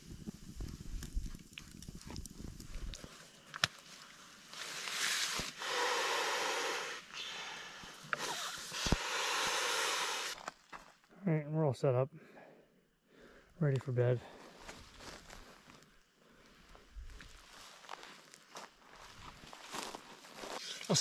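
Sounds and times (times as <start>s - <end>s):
breaths blown into valve: 5.3s - 10.4s.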